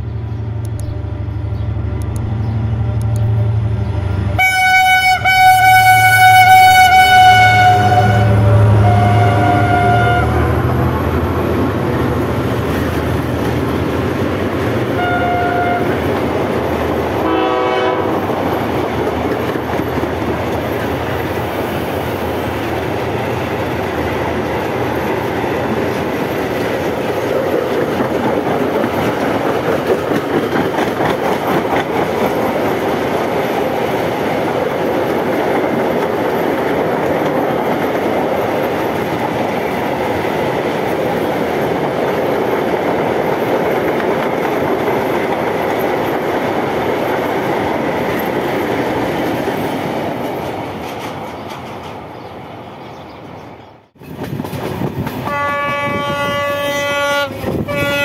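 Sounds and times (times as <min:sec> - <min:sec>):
diesel locomotive engine rumbling: 0:00.0 - 0:58.0
train horn: 0:02.9 - 0:10.8, 0:15.0 - 0:16.1, 0:17.2 - 0:18.5, 0:55.2 - 0:58.0
train wheels clattering over rail joints: 0:23.8 - 0:52.3, 0:54.0 - 0:55.4.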